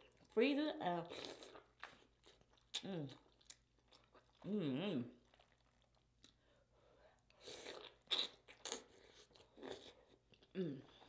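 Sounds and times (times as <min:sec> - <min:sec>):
person biting and chewing: 0:07.5 - 0:10.1
person humming mm: 0:10.5 - 0:11.0.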